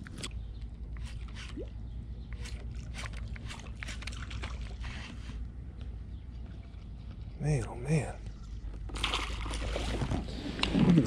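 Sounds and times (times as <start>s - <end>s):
water lapping against kayak hull: 8.6s - 11.0s.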